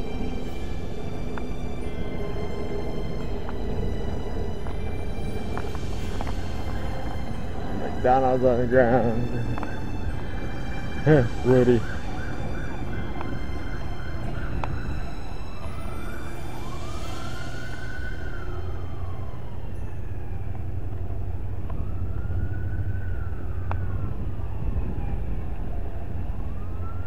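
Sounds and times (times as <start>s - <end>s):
steady low rumble: 0.0s - 26.7s
distant emergency siren: 0.0s - 27.0s.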